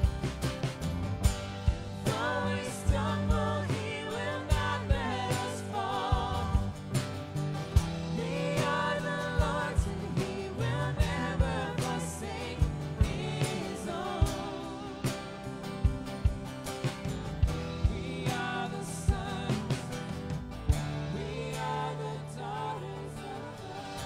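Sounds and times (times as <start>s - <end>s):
drum kit hits: 0.0s - 21.3s
acoustic guitar: 0.0s - 24.0s
electric bass: 0.0s - 24.0s
voices singing: 1.8s - 24.0s.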